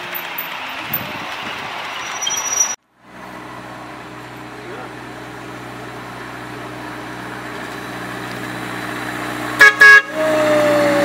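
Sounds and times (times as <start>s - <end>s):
miniature locomotive engine hum: 0.0s - 11.0s
train horn toots: 9.6s - 10.3s.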